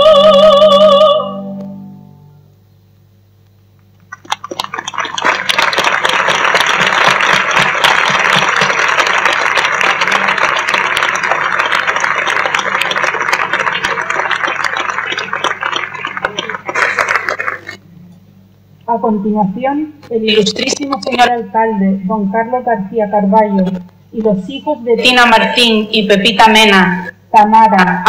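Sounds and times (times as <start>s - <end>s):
crowd applauding: 4.1s - 17.8s.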